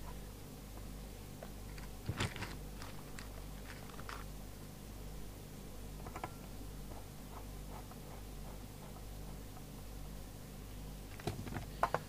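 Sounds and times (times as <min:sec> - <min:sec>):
steady low hum: 0:00.0 - 0:12.0
clicks and rustles of cables: 0:01.4 - 0:04.3.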